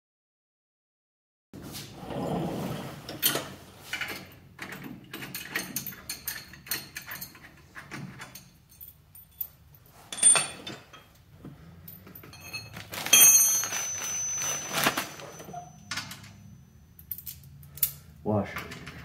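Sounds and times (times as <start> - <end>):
metallic clinks of tools: 8.1 - 11.2, 11.8 - 18.1
plastic bag crinkling: 12.7 - 15.5.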